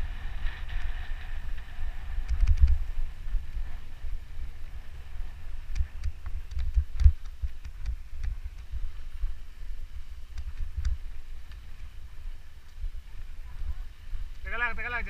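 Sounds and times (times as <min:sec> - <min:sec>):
bike clicks and rattles: 0:00.0 - 0:09.4, 0:10.0 - 0:13.2
bike rolling over dirt trail: 0:00.0 - 0:14.5.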